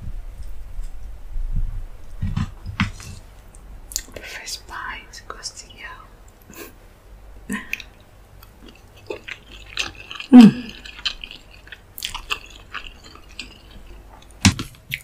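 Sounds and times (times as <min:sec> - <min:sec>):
chewing food: 0:07.5 - 0:15.0.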